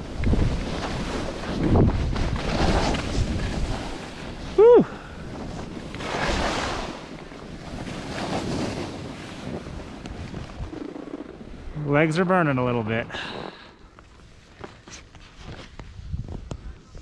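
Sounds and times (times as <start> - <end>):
wind buffeting microphone: 0.0 - 11.9, 15.7 - 17.0.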